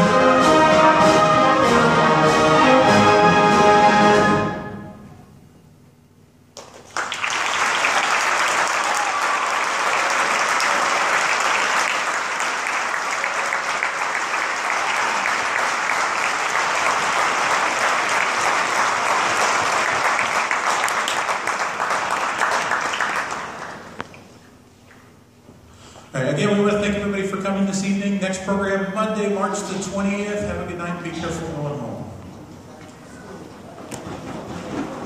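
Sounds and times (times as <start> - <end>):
audience applauding: 6.6 - 24.3.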